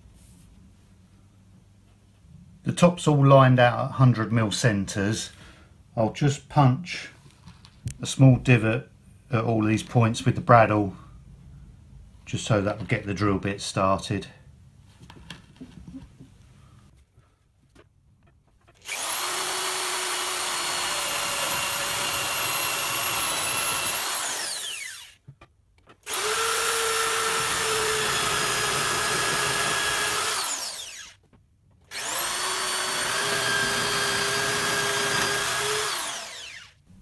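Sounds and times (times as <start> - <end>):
power drill boring through plywood: 18.7 - 25.2, 26.0 - 31.2, 31.8 - 36.8.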